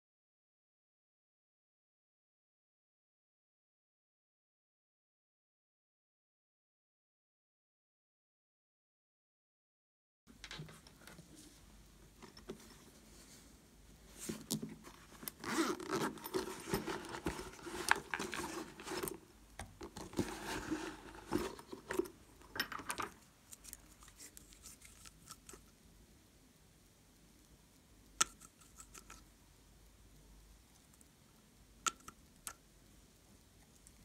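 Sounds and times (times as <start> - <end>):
rustling and scraping of toy: 10.6 - 25.7.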